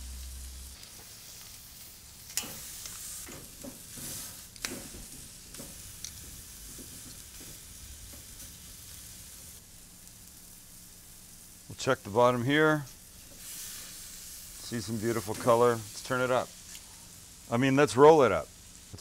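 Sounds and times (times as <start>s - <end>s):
meat sizzling on grill: 0.0s - 19.0s.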